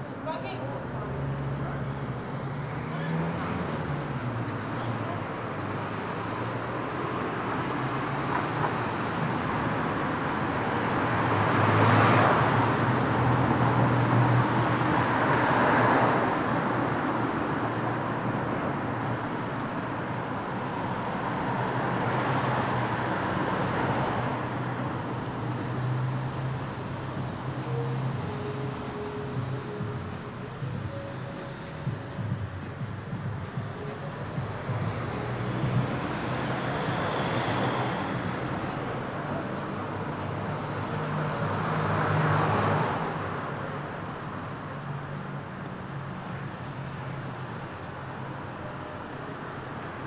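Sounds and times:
cars passing: 0:00.0 - 0:50.0
low engine hum: 0:23.9 - 0:40.2.

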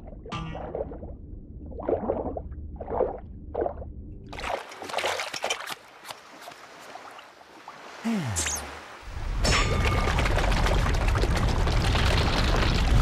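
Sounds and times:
bubbly gurgles: 0:00.0 - 0:04.6, 0:10.1 - 0:13.0
water splashing and dripping: 0:01.7 - 0:13.0.

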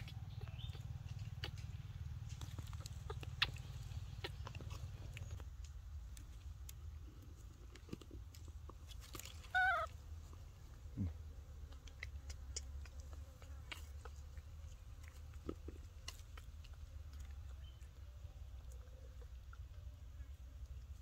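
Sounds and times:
baby monkey squealing: 0:09.5 - 0:09.9.

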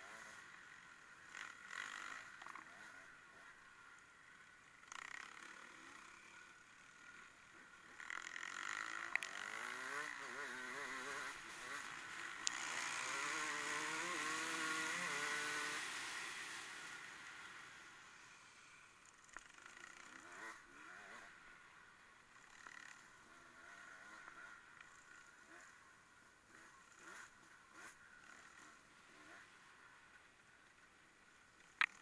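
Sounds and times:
vehicle engine revving past: 0:12.5 - 0:16.6
sharp clicks: 0:31.8 - 0:32.0.

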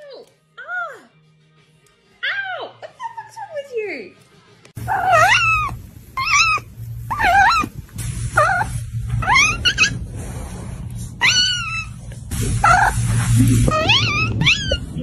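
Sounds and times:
cat meowing: 0:04.8 - 0:07.7, 0:08.4 - 0:10.0, 0:11.2 - 0:12.0, 0:13.6 - 0:15.0.

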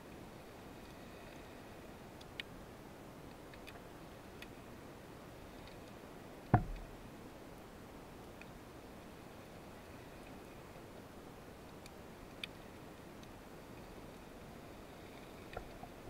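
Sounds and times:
faint sharp clicks: 0:02.2 - 0:02.5, 0:03.3 - 0:03.8, 0:08.3 - 0:08.6, 0:11.6 - 0:13.9
loud knock with deep thud: 0:06.5 - 0:06.8.

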